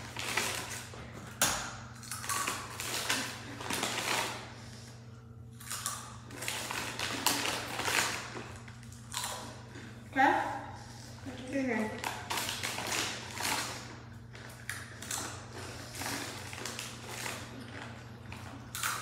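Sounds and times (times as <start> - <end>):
chips being crunched and chewed: 2.0 - 4.5, 5.6 - 9.9, 12.0 - 19.0.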